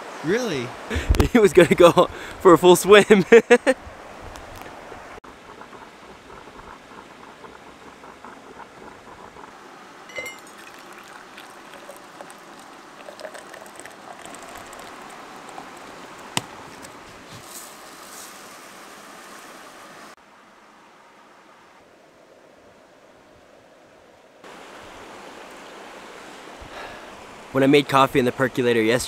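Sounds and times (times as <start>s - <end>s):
percolator bubbling and gurgling: 5.2s - 16.9s.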